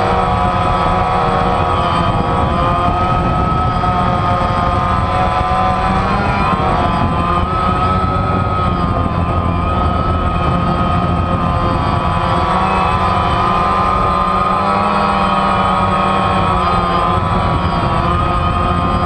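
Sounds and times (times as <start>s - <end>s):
drone propellers whining: 0.0s - 19.0s
steady low rumble: 5.7s - 13.2s.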